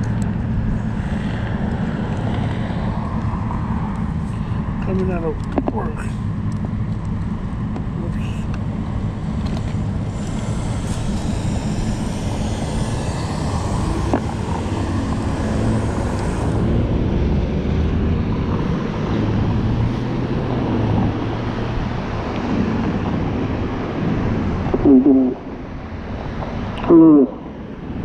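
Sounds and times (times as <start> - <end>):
cars driving past: 0.0 - 28.0.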